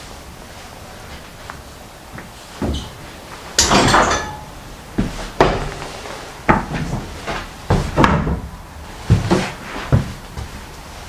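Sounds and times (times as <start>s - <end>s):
footsteps on hardwood floor: 5.0s - 8.4s, 9.0s - 10.6s.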